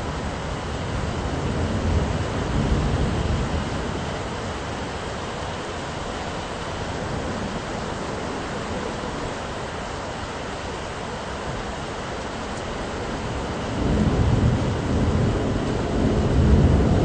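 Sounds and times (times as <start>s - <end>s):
low thunder rumble: 0.0s - 9.4s, 12.9s - 17.0s
rain hiss: 0.0s - 17.0s.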